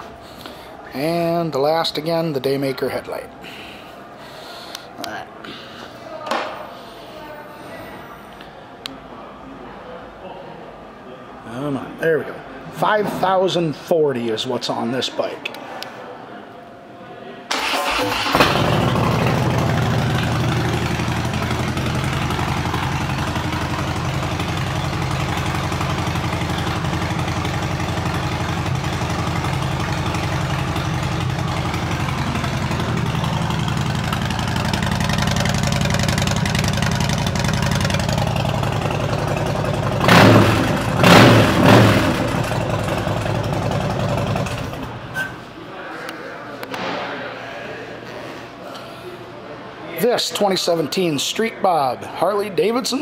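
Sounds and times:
motorcycle engine idling: 17.9 - 45.1
motorcycle throttle blips: 17.9 - 45.4.

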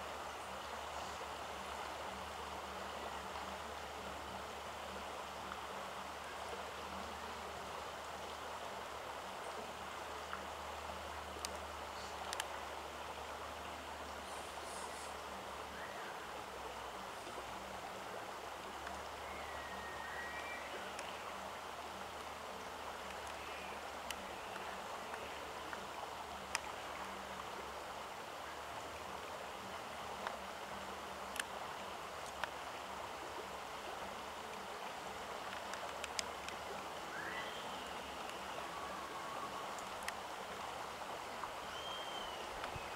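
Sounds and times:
steady rushing hiss: 0.0 - 42.9
small clicks: 12.2 - 12.6, 31.3 - 31.6, 35.4 - 36.9
faint bird chirps: 14.2 - 16.4, 18.7 - 21.4, 23.2 - 25.4, 37.0 - 40.0, 41.6 - 42.9.

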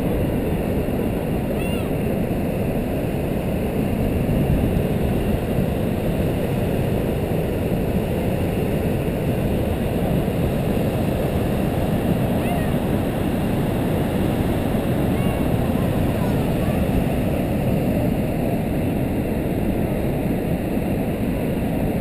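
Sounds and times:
waterfall roaring: 8.8 - 18.6.

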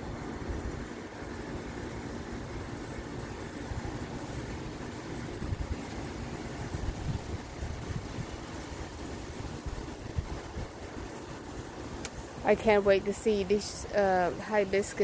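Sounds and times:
low rumble of outdoor background noise: 0.0 - 15.0.

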